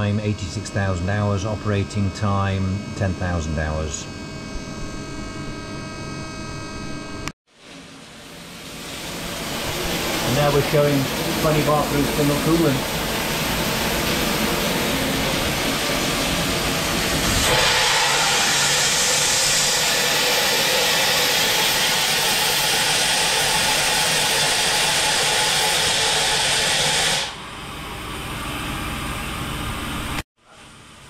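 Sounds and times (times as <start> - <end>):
coolant jet spraying: 8.2 - 27.3
air blast hissing: 8.6 - 27.4.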